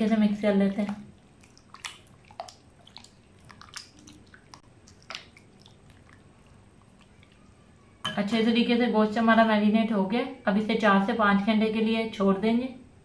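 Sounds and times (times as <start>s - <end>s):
hands squelching meat in marinade: 0.8s - 7.6s.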